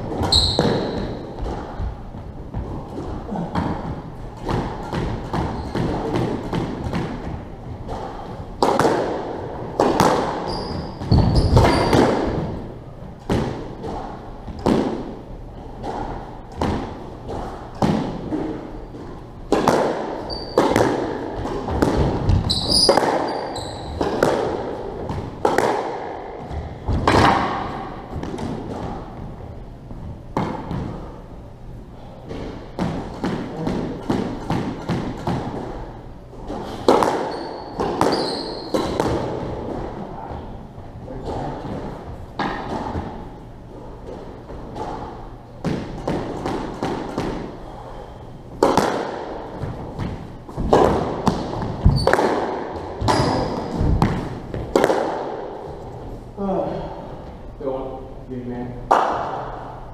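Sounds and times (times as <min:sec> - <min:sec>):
squash ball hitting racquets and walls: 0:00.0 - 0:57.4, 0:58.8 - 0:59.9
shoes squeaking on wooden floor: 0:00.2 - 0:03.4, 0:05.4 - 0:06.0, 0:10.4 - 0:12.4, 0:20.2 - 0:20.8, 0:22.1 - 0:24.1, 0:36.6 - 0:39.0, 0:51.3 - 0:52.2, 0:53.0 - 0:54.1.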